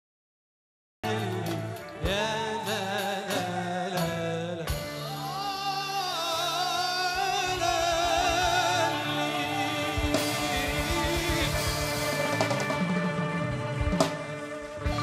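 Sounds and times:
man singing ornamented melody: 1.0 - 12.8
live ensemble accompaniment: 1.0 - 15.0.

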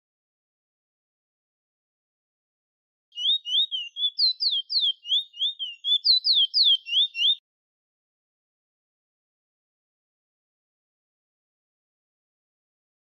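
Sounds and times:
finch singing whistled notes: 3.2 - 7.4.

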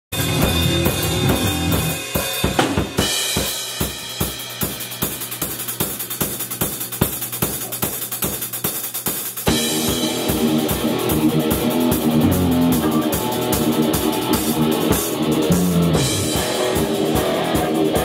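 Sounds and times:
heavy metal drum kit: 0.1 - 18.0
other instruments playing: 0.2 - 5.4, 9.5 - 18.0.

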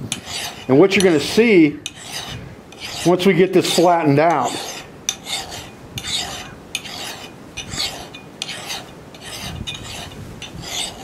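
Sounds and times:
file scraping steel axe head: 0.1 - 11.0.

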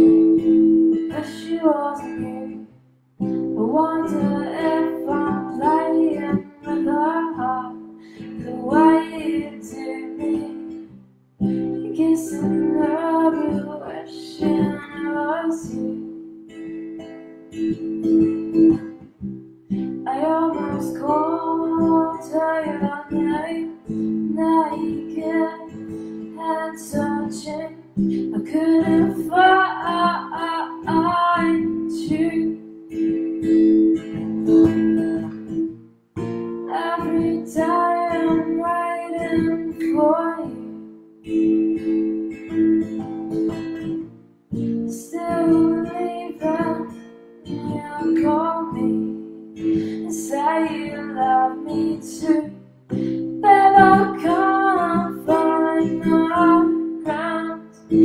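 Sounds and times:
woman singing: 0.0 - 2.7, 3.5 - 16.2, 19.8 - 32.8, 36.7 - 40.9, 44.8 - 58.0
strummed acoustic guitar: 0.0 - 58.0.

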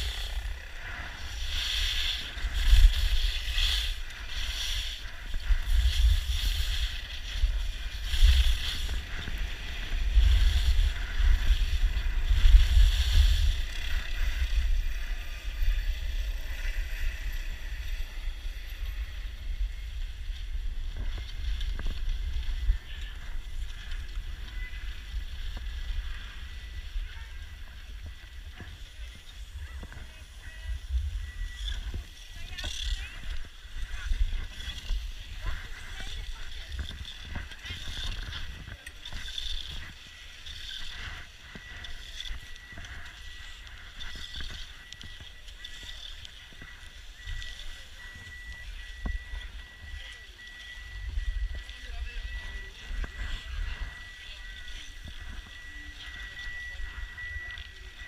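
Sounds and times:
skis hissing over snow: 0.0 - 14.6
wind buffeting microphone: 0.0 - 58.0.

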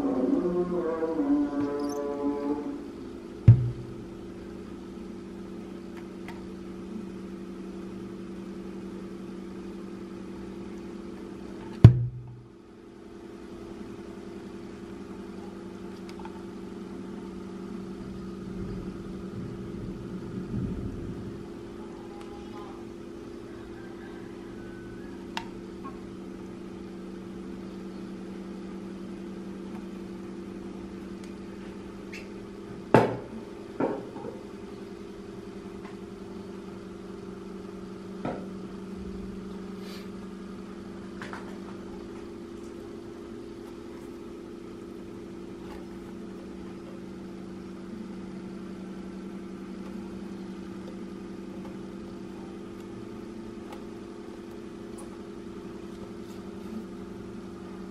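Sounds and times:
low hum: 0.0 - 57.9
metal muffler knocking on table: 3.5 - 4.0, 11.8 - 12.4.

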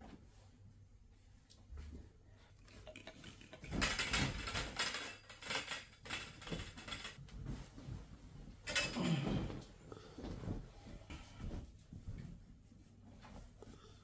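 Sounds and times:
curtain rustling along a rod: 2.9 - 13.6.

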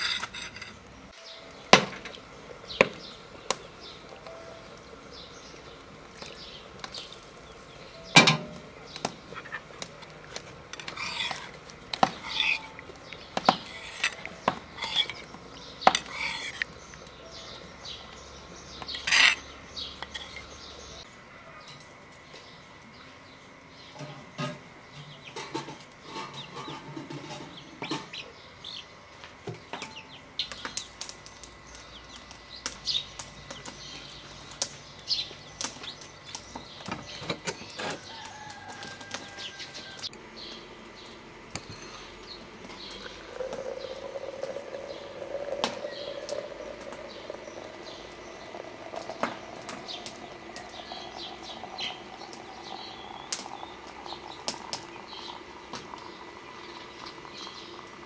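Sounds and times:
small birds chirping: 29.9 - 58.0
hot water pouring into glass: 42.8 - 58.0.

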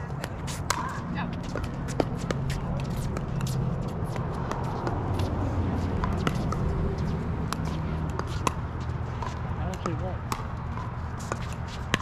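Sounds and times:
paddles hitting plastic ball: 9.2 - 12.0.

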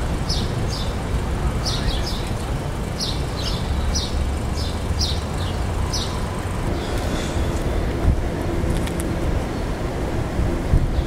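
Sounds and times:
bird chirping: 1.6 - 2.4, 3.0 - 7.5.

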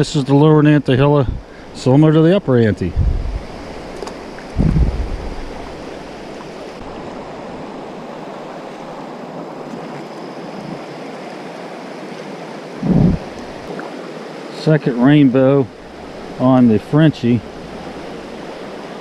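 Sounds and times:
low thump: 4.6 - 5.6, 12.8 - 13.3.

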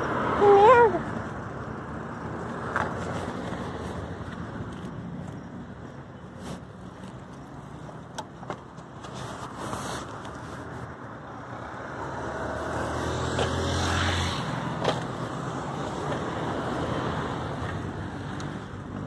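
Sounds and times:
car traffic driving past: 0.0 - 19.0
road noise: 0.0 - 19.0
car engine hum passing close: 8.7 - 19.0.

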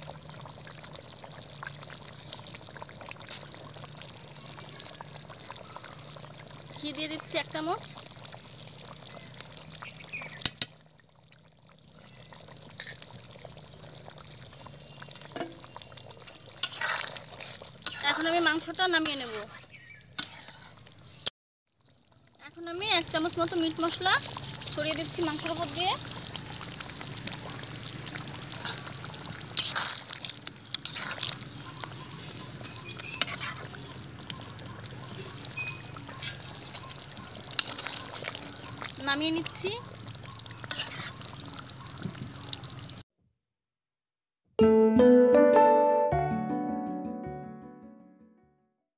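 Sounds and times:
curry bubbling in a pan: 0.0 - 43.0
spatula stirring curry: 15.8 - 20.9, 28.0 - 42.0.

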